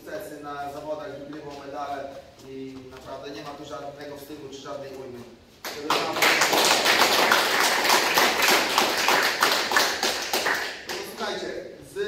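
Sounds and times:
people applauding: 5.6s - 11.4s.

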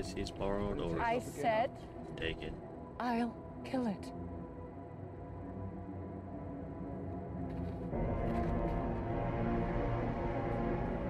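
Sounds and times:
dark tense orchestral music: 0.0s - 11.0s.

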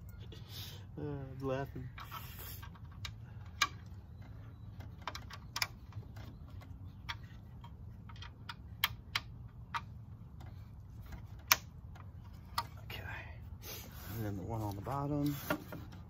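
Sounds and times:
clicks and taps of wooden parts: 1.8s - 12.8s, 15.2s - 16.0s.

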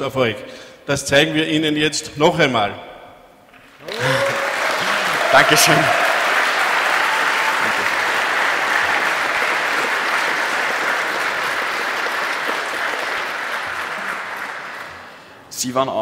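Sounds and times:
audience applauding: 3.6s - 15.4s.

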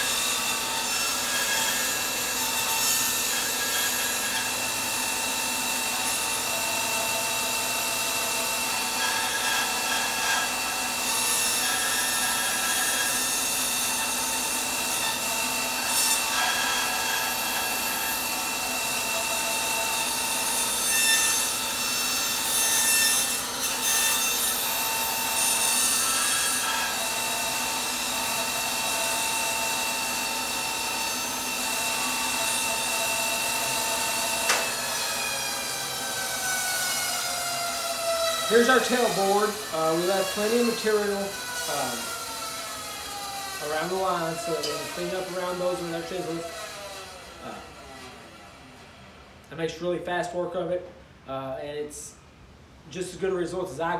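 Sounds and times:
saw blade rasping through wood: 0.0s - 48.2s
bandsaw motor whine: 0.0s - 48.8s.

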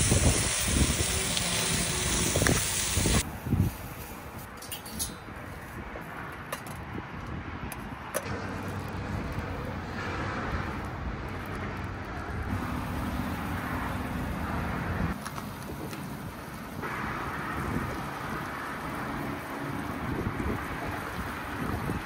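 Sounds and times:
metal cookware clinking: 4.6s - 5.3s.

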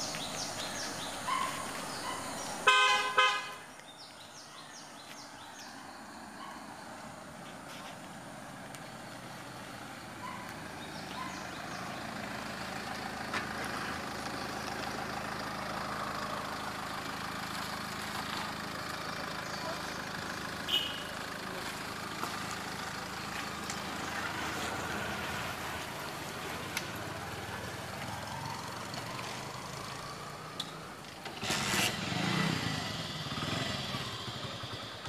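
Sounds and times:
birds chirping: 0.0s - 7.4s, 8.7s - 13.3s, 18.2s - 29.0s
car engine hum: 0.0s - 35.0s
car horn toots: 2.6s - 3.7s, 20.6s - 21.2s.

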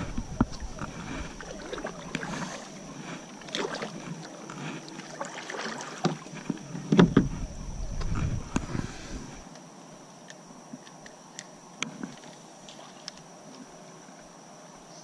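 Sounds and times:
kayak paddle splashing: 0.0s - 9.5s.

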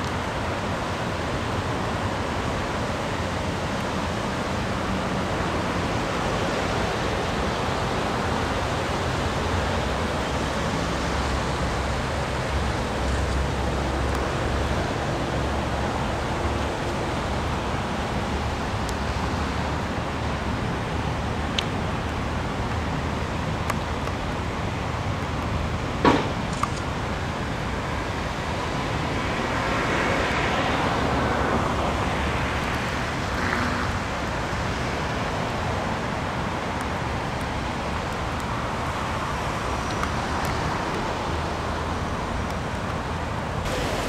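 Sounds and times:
river rushing: 0.0s - 44.0s
sharp knock: 26.0s - 26.4s
passing road vehicle: 27.4s - 44.0s.

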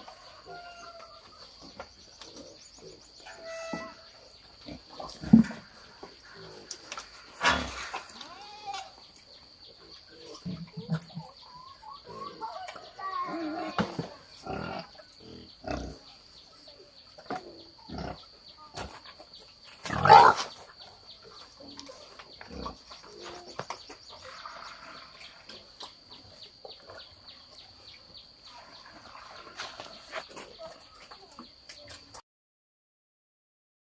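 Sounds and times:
pigs grunting: 2.2s - 8.3s, 9.8s - 11.4s, 13.3s - 16.2s, 17.3s - 18.4s, 19.8s - 23.6s.

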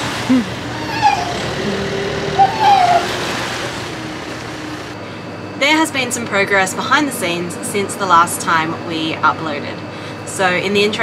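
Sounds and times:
short rising and falling calls: 0.3s - 3.6s
waves washing onto concrete: 2.7s - 5.0s.

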